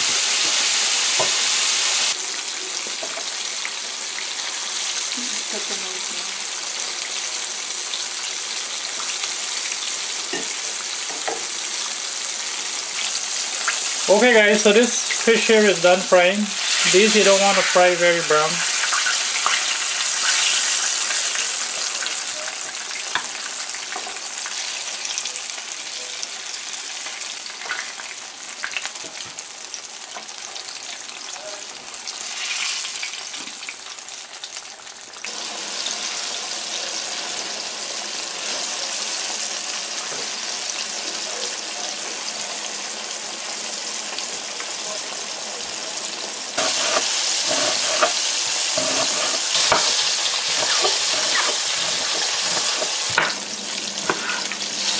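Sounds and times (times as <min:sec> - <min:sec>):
fish sizzling in oil: 0:00.0 - 0:54.9
knife cutting onion on board: 0:46.6 - 0:48.2.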